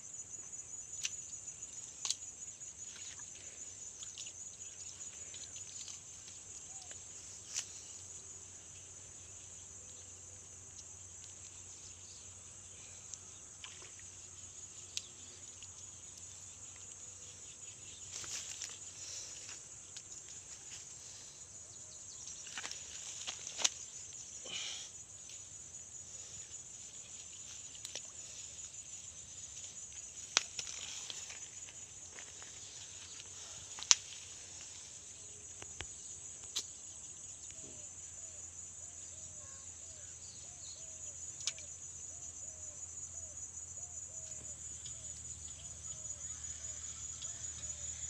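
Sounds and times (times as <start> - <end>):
crickets shrilling: 0.0 - 48.0
sharp clicks of snapping twigs: 22.4 - 23.9, 30.2 - 32.3, 33.2 - 34.3, 35.6 - 36.8.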